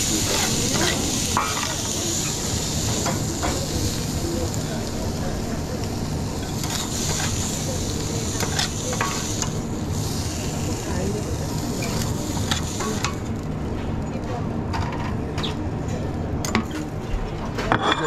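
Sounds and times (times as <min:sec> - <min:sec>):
food sizzling in a pan: 0:00.0 - 0:13.4.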